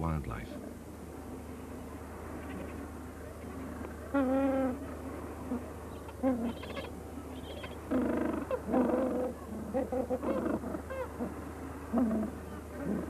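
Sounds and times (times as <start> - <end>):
steady low hum: 0.0 - 13.0
penguins calling: 5.4 - 11.3.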